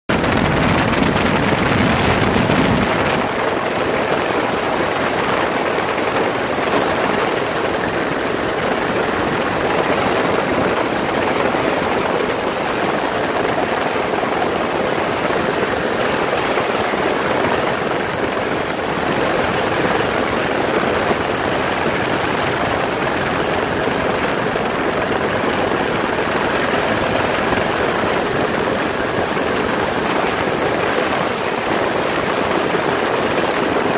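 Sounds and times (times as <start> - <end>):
helicopter rotor and turbine drone: 0.1 - 33.9.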